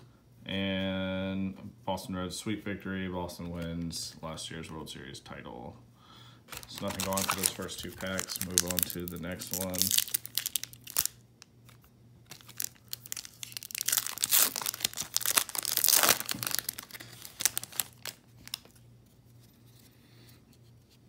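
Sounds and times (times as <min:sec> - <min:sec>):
plastic wrapper tearing and crinkling: 0:06.5 - 0:18.8.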